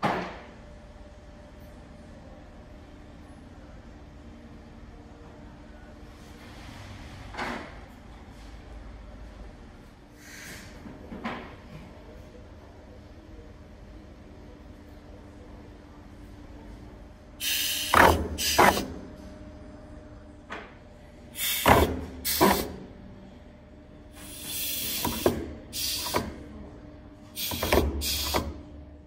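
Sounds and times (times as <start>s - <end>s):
pneumatic cutter hissing and clunking: 17.4s - 18.9s, 21.4s - 22.8s, 24.2s - 26.4s, 27.4s - 28.6s.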